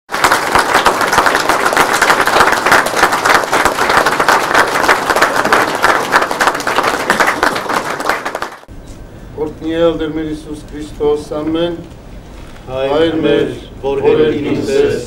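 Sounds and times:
audience applauding: 0.1 - 8.7.

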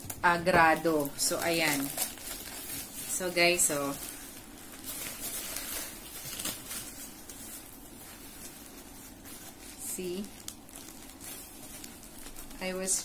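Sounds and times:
packaging rustling and crinkling: 0.0 - 13.0.

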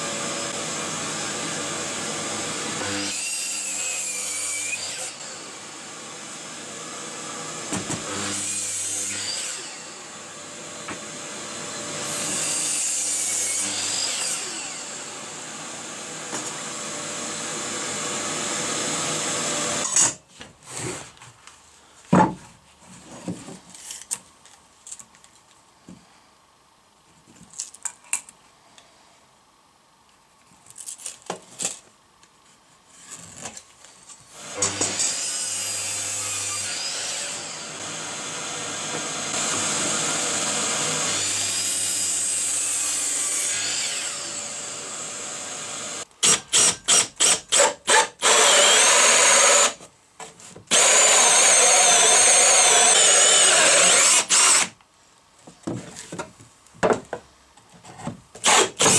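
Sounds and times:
miter saw cutting wood: 34.4 - 49.8, 50.7 - 54.8, 58.4 - 58.9.

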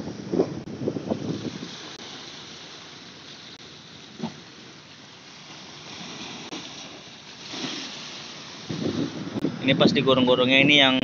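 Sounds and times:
waves washing against rocks: 0.0 - 9.5
wind: 0.0 - 11.0
brief thump: 4.2 - 4.4.

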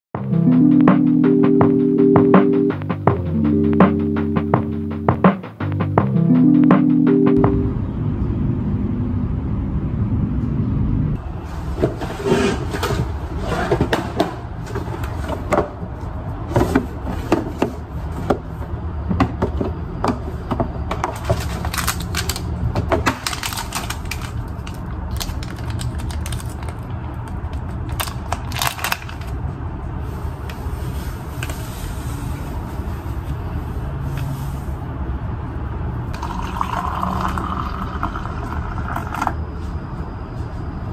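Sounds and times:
background music: 0.2 - 7.9
steady low hum: 0.2 - 11.5.

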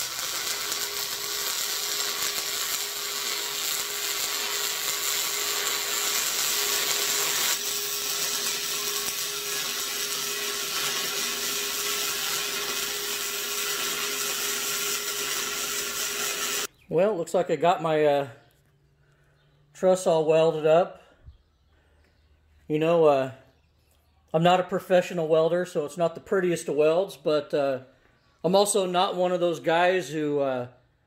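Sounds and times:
welding arc crackling hiss: 0.0 - 16.7.

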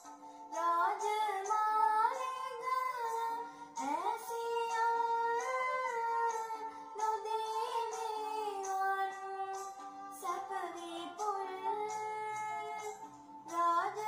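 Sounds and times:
girl singing: 0.0 - 14.0
quiet instrumental backing: 0.0 - 14.0.

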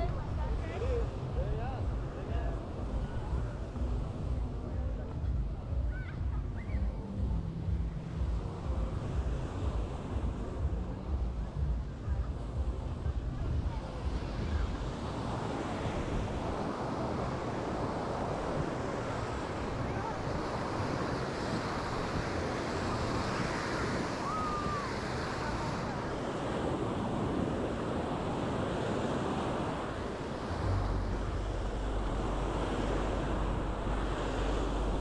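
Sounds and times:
low rumble: 0.0 - 15.0, 30.4 - 35.0
surf breaking on beach: 0.0 - 35.0
wind buffeting microphone: 0.0 - 35.0.

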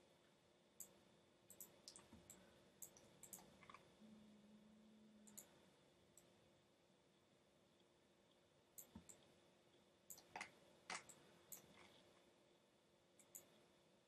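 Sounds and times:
faint low hum: 0.0 - 14.0
computer mouse clicks: 0.8 - 3.8, 5.2 - 5.6, 8.8 - 9.3, 10.1 - 12.0, 13.2 - 13.6.

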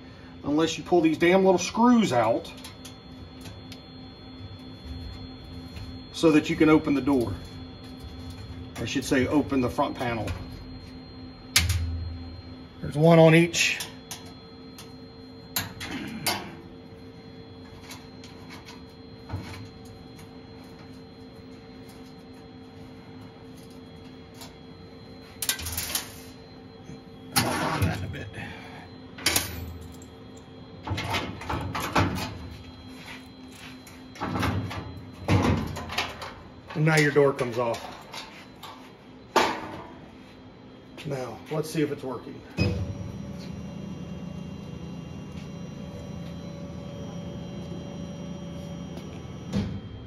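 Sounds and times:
faint motor whine: 0.0 - 50.0
machine humming: 0.0 - 50.0
motor hum: 42.5 - 50.0.

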